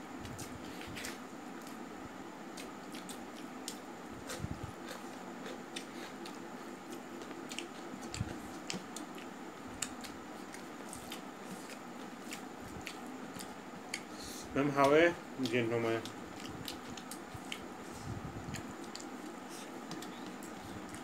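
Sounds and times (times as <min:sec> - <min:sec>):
background hum: 0:00.0 - 0:21.0
chewing: 0:02.6 - 0:14.2, 0:14.8 - 0:17.7.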